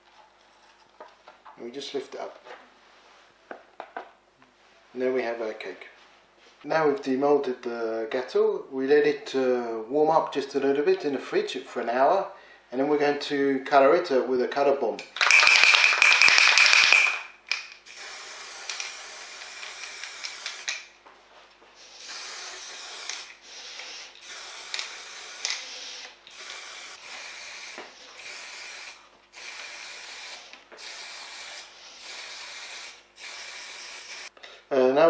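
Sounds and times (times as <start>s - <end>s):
aerosol spray can hissing: 15.2s - 17.2s, 17.8s - 20.9s, 21.8s - 34.3s.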